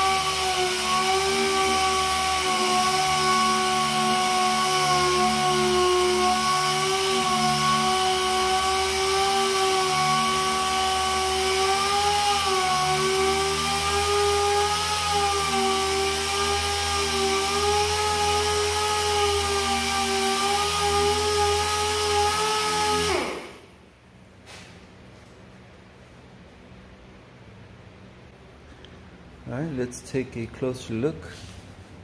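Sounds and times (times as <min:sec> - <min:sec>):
pneumatic sander whining: 0:00.0 - 0:23.7.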